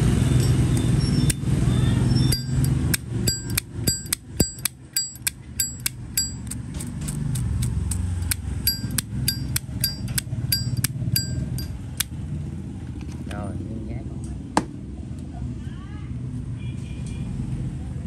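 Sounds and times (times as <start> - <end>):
lighter lid clicking open and shut: 2.3 - 11.4.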